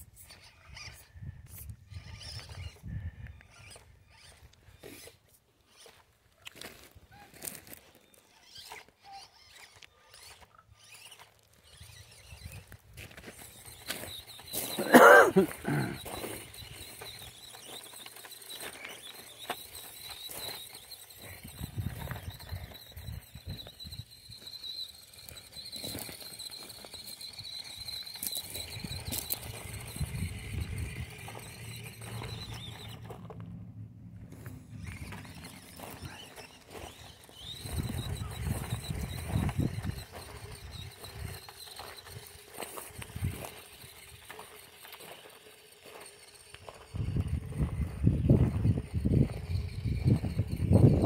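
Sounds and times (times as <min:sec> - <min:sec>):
small electric motor whine: 0:00.0 - 0:51.0
tyres crunching on gravel: 0:05.7 - 0:33.6, 0:34.2 - 0:51.0
footsteps crunching on gravel: 0:34.2 - 0:47.8.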